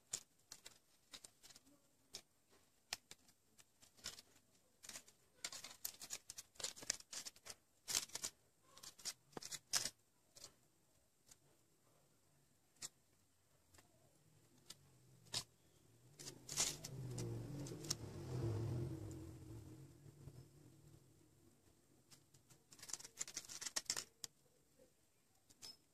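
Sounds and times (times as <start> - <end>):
crepe paper crinkling: 0.0 - 10.6, 13.7 - 18.0, 22.1 - 24.5.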